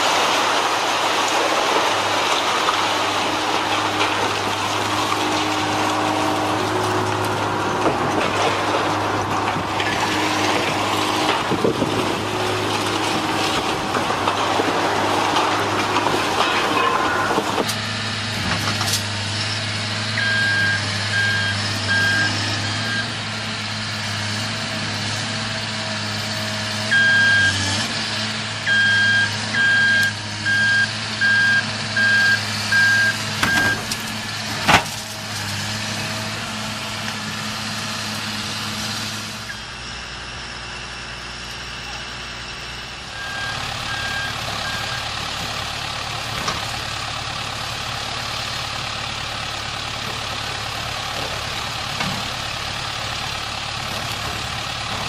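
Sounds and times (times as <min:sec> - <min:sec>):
building demolition noise: 0:00.0 - 0:55.0
diesel engine running: 0:00.0 - 0:55.0
backup alarm beeping: 0:28.7 - 0:33.9, 0:43.2 - 0:45.0.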